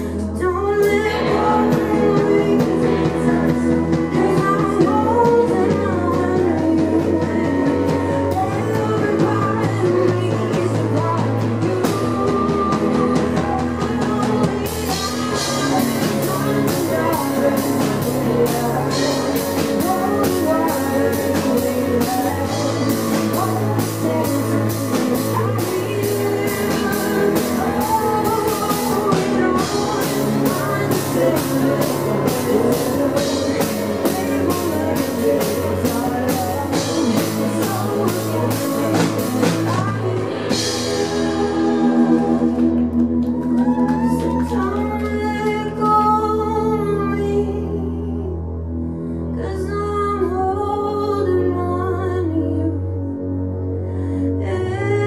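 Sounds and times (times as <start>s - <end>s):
rock band playing: 0.0s - 47.1s
woman singing: 0.0s - 48.4s, 49.2s - 53.2s, 53.8s - 55.0s
keyboard playing: 0.0s - 53.8s.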